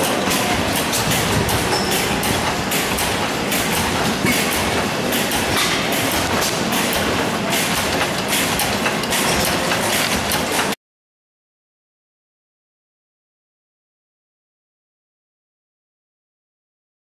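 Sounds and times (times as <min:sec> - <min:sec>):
stationary engines clattering: 0:00.0 - 0:10.8.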